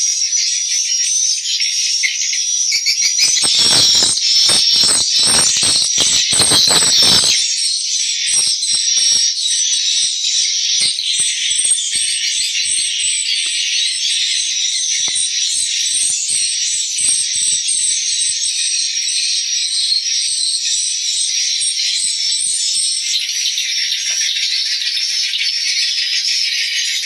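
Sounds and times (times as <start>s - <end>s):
sharp clicks: 3.2s - 7.4s
swiftlets twittering: 3.2s - 7.6s.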